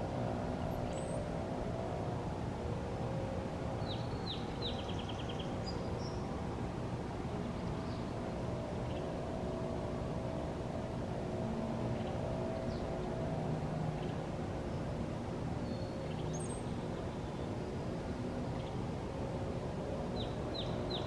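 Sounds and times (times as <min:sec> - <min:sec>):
low mechanical hum: 0:00.0 - 0:21.0.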